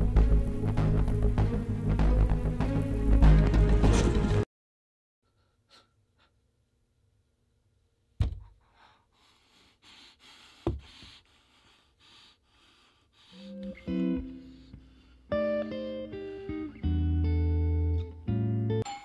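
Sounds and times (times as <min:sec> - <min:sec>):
soft uneven breathing: 0:08.5 - 0:15.3.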